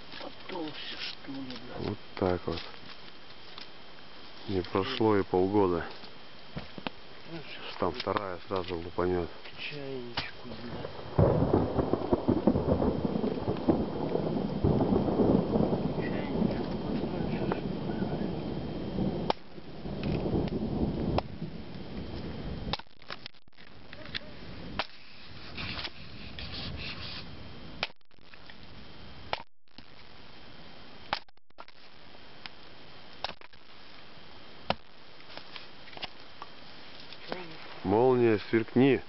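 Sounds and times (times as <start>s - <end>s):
sharp cracks and snaps: 7.6s - 8.9s, 19.2s - 26.0s, 27.8s - 28.7s, 29.3s - 30.2s, 31.0s - 37.4s
thunder rumbling: 10.6s - 22.8s.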